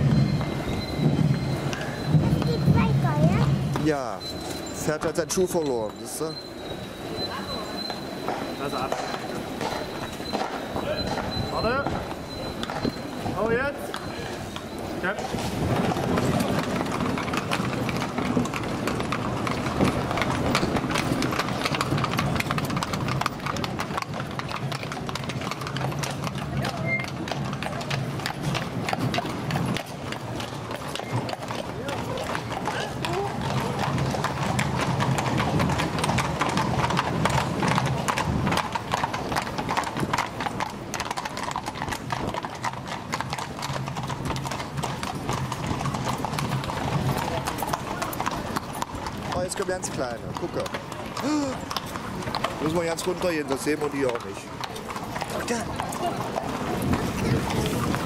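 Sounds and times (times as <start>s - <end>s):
carriage wheels rumbling on cobbles: 0.0s - 58.0s
hooves clip-clopping on cobblestones: 0.0s - 58.0s.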